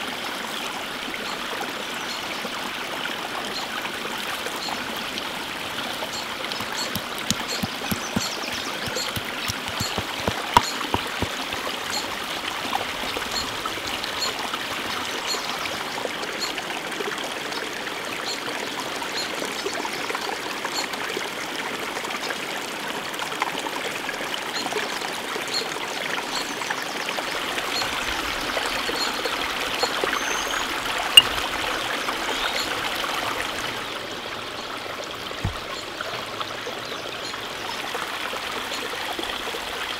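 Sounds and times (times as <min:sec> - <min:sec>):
small stream running: 0:00.0 - 0:39.9
stone pestle grinding in mortar: 0:06.6 - 0:11.3.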